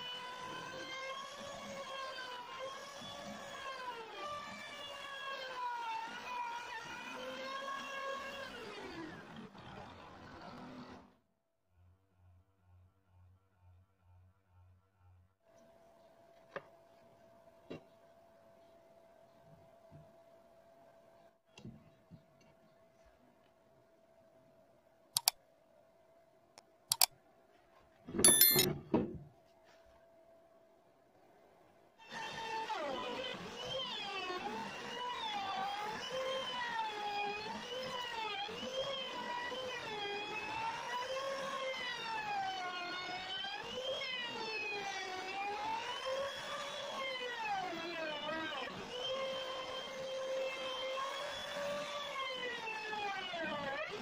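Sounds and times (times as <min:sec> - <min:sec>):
router motor whine: 0:00.0 - 0:10.0, 0:32.0 - 0:54.0
notification bell chime: 0:28.3 - 0:28.7.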